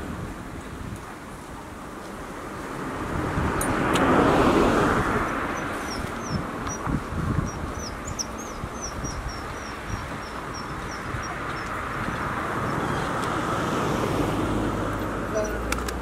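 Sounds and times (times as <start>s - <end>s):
car passing: 1.4s - 16.0s
bird chirping: 5.3s - 13.3s.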